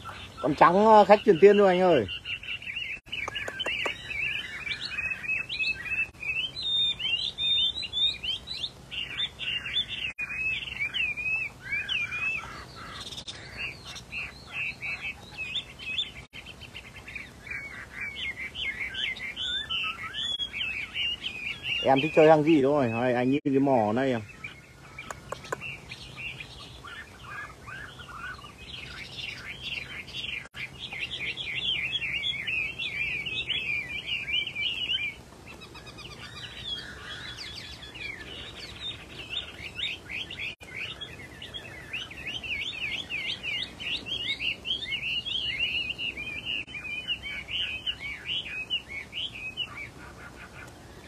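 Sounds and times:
bird singing whistled phrases: 17.5s - 23.3s.

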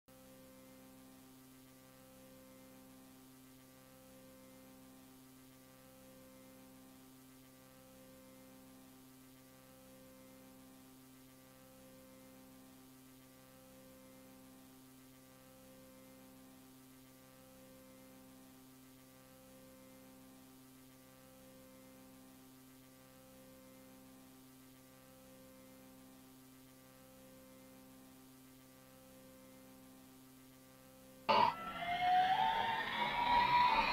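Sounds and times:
tape hiss: 0.1s - 33.9s
pulsing low tone: 31.3s - 33.9s.

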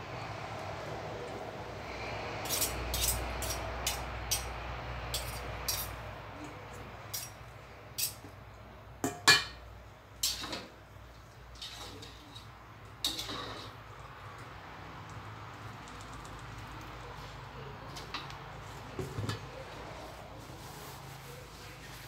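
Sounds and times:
cutlery clinking against metal bowl: 2.5s - 4.5s, 5.2s - 7.4s, 8.0s - 8.3s, 9.0s - 9.6s, 10.2s - 10.7s, 11.6s - 13.8s.

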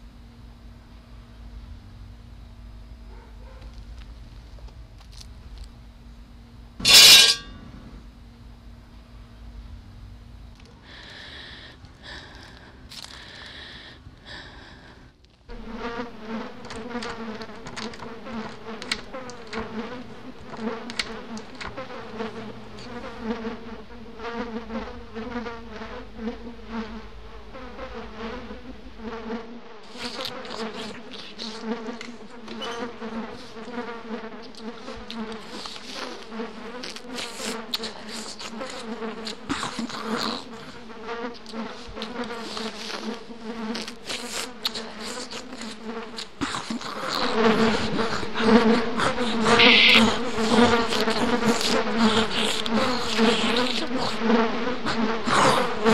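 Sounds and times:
wavering buzz with crackling clicks: 0.0s - 55.9s.

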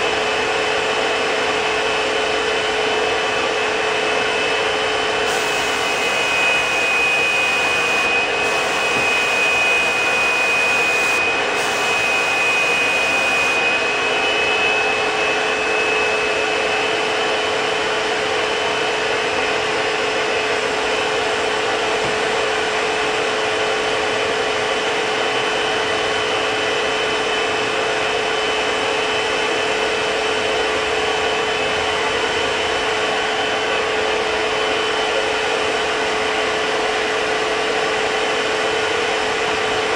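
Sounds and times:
spray turbine whining: 0.0s - 39.9s
high whistle: 5.2s - 16.5s.

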